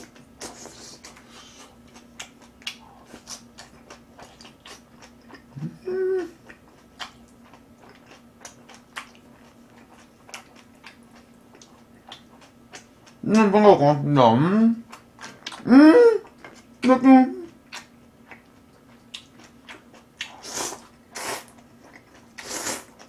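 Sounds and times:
person chewing with wet mouth clicks: 0.0s - 5.7s, 6.4s - 13.5s, 14.9s - 15.6s, 17.5s - 23.0s
faint electrical hum: 0.0s - 23.0s
person humming: 5.6s - 6.4s, 15.6s - 17.5s.

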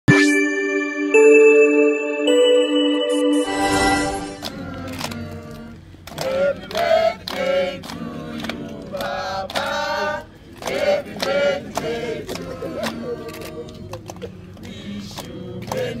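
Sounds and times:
group singing birthday song: 2.2s - 16.0s
hand claps: 4.4s - 9.8s, 10.6s - 16.0s.

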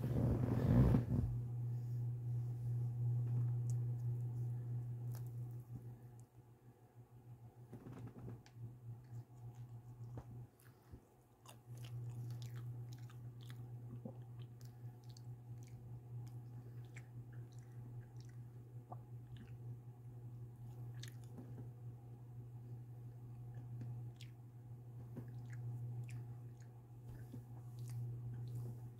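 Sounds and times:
steady low hum: 0.0s - 28.9s
person chewing pizza: 5.0s - 6.3s, 9.0s - 19.8s, 20.5s - 21.7s, 23.2s - 24.4s, 25.0s - 28.9s.

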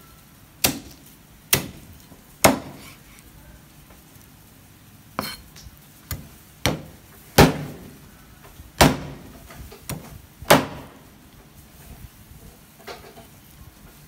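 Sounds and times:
knife chopping ribs on wood: 2.4s - 2.9s, 6.1s - 7.7s.

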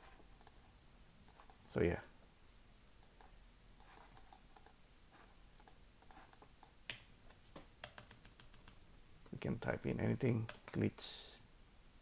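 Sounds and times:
keyboard typing clicks: 3.0s - 4.8s, 5.6s - 7.0s, 7.8s - 9.9s, 10.5s - 10.8s.

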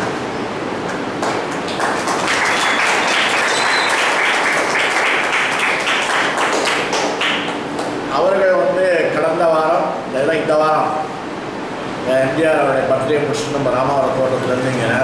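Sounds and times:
audience applauding: 1.2s - 7.9s.

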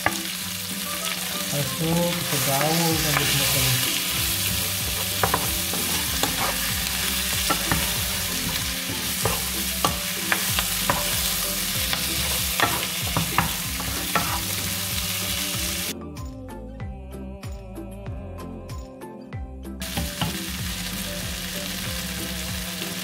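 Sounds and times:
chicken sizzling in hot oil: 0.0s - 15.9s, 19.8s - 23.0s
wooden spatula scraping pan: 2.1s - 14.7s.

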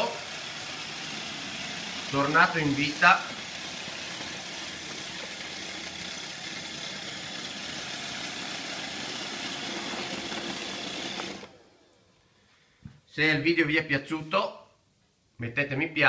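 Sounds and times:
robot vacuum whirring: 0.0s - 12.0s.

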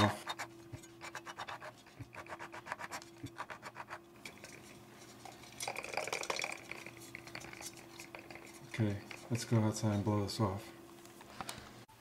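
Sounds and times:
knife blade scraping foam: 0.1s - 4.0s.

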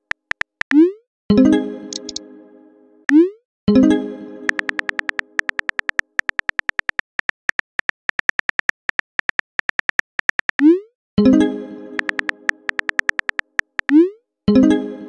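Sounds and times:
keyboard typing clicks: 0.0s - 0.9s, 1.9s - 2.2s, 4.5s - 10.8s, 12.0s - 14.1s.

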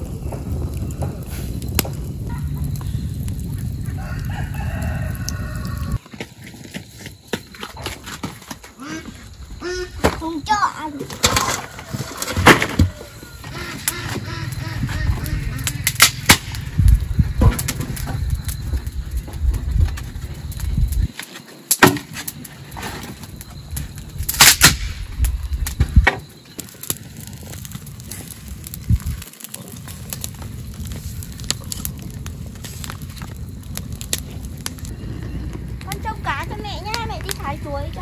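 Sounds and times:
wood fire crackling and popping: 0.0s - 38.0s.

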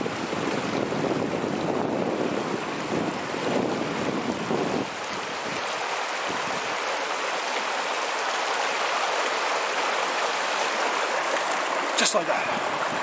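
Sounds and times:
wind rumble on microphone: 0.0s - 6.8s, 12.4s - 13.0s
river rushing over rocks: 0.0s - 13.0s.

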